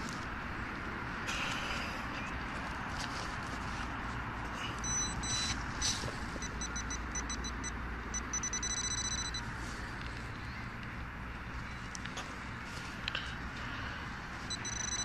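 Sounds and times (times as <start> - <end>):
metal detector pinpointer beeping: 4.8 - 9.4, 14.5 - 15.0.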